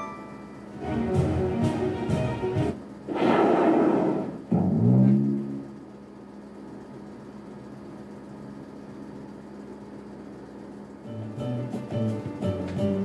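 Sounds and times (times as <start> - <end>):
low slot machine note: 0.0 - 2.6
steady low machine hum: 0.0 - 13.0.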